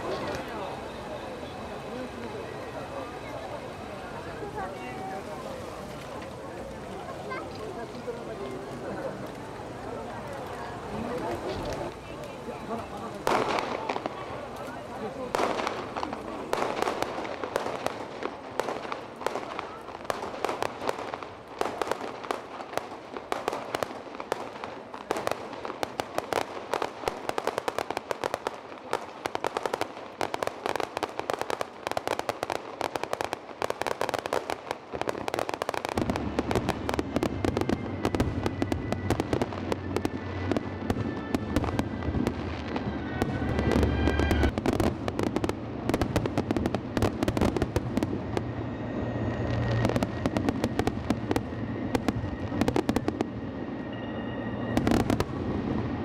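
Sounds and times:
fireworks crackling: 0.0 - 56.0
fireworks booming: 12.7 - 56.0.

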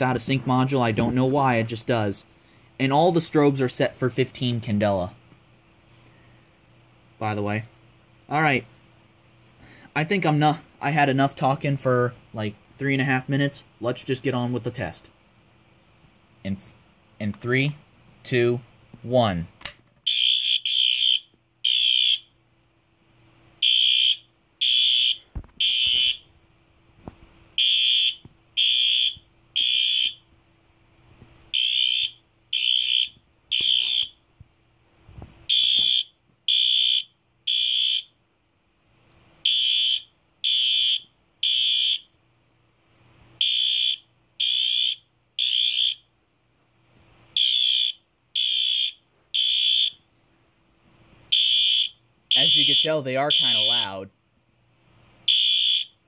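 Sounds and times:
fire alarm horn beeps: 20.1 - 22.3, 23.6 - 26.2, 27.6 - 30.2, 31.5 - 34.2, 35.5 - 38.1, 39.4 - 42.1, 43.4 - 46.0, 47.4 - 50.0, 51.3 - 53.9, 55.3 - 56.0.

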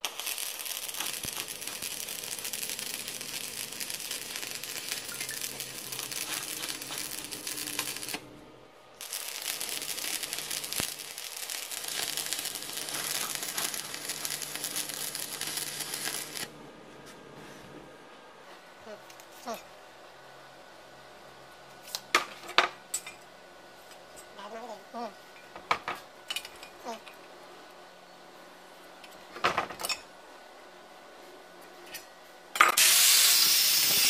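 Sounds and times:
welding arc crackling: 0.0 - 8.3, 9.0 - 16.5, 32.8 - 34.0.

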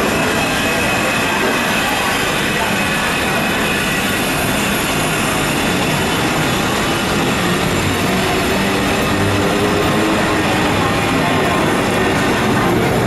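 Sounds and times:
train station rumble and hiss: 0.0 - 13.0.

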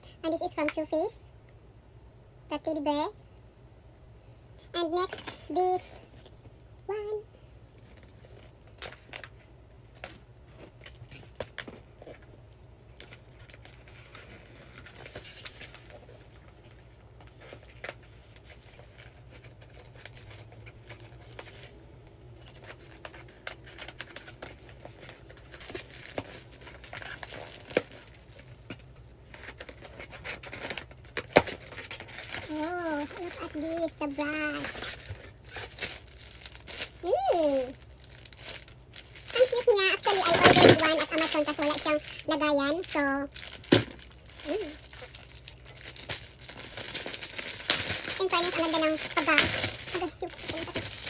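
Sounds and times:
cardboard tearing and rustling: 13.0 - 16.4, 17.3 - 21.7, 22.4 - 51.0.

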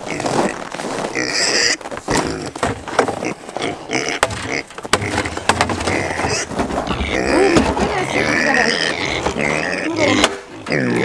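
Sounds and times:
boots crunching in snow: 0.0 - 2.5
pigs squealing: 0.1 - 2.6, 3.2 - 11.0.

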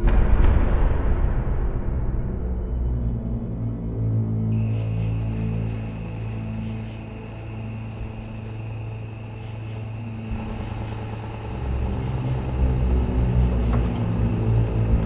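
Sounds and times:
low even drone: 0.0 - 15.0
crickets chirping: 4.4 - 15.0.

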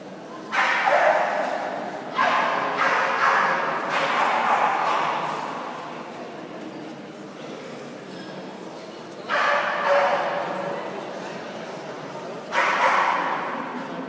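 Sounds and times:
dogs barking in echoing hall: 0.3 - 6.1, 9.2 - 11.0, 12.4 - 14.0.

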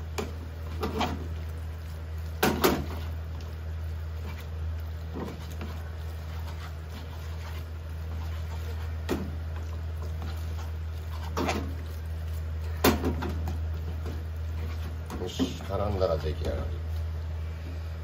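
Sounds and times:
tongs scraping a frying pan: 4.1 - 15.6.

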